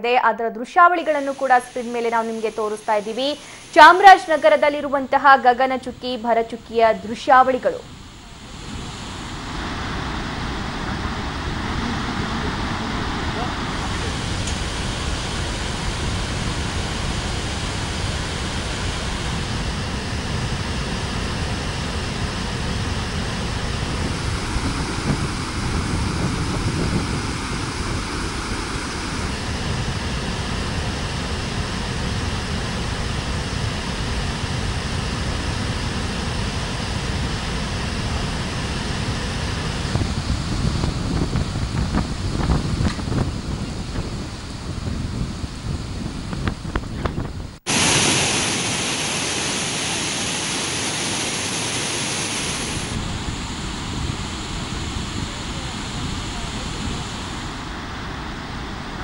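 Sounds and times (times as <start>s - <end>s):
waterfall rushing: 1.1s - 4.6s, 8.0s - 20.0s, 47.7s - 59.0s.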